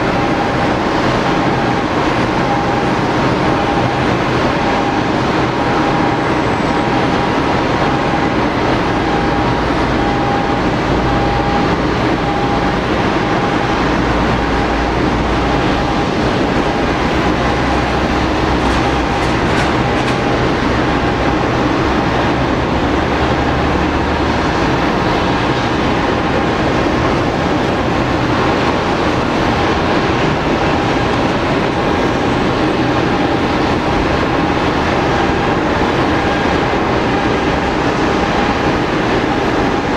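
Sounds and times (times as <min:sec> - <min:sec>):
jet engines idling: 0:00.0 - 0:39.9.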